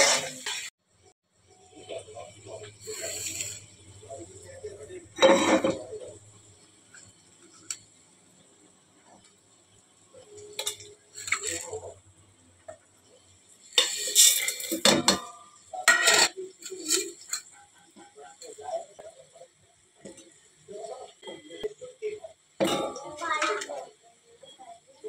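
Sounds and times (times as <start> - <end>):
steel kitchenware clattering: 5.2 - 6.2, 10.4 - 11.9, 13.7 - 17.6, 22.6 - 23.6.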